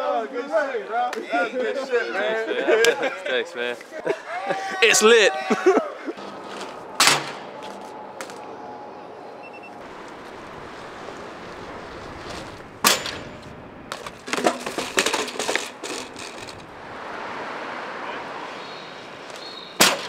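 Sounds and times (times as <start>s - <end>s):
bike riding on pavement: 6.0s - 20.0s
bike crashing onto stone paving: 11.8s - 16.7s.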